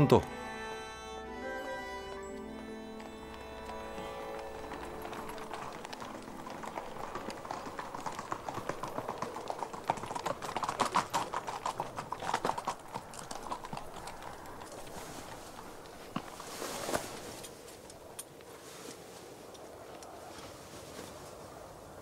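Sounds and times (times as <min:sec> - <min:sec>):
horse hooves clip-clopping: 0:02.1 - 0:20.4.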